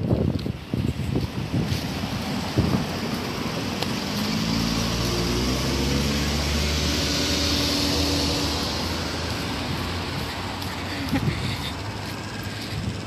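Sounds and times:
car driving past: 0:01.8 - 0:10.7.

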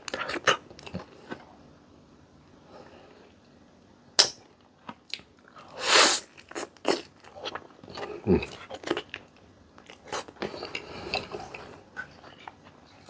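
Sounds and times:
quiet chewing: 0:04.8 - 0:13.0.

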